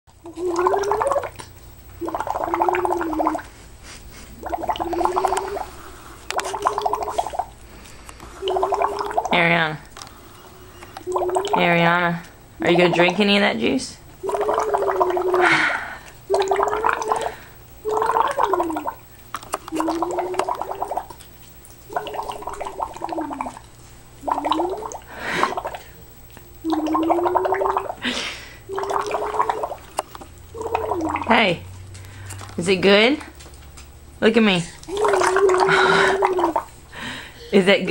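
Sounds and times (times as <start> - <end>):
bubbles gurgling in a drink: 0.1 - 3.6, 4.3 - 13.4, 14.0 - 31.7, 34.8 - 37.2
toddler breathing: 36.9 - 37.6.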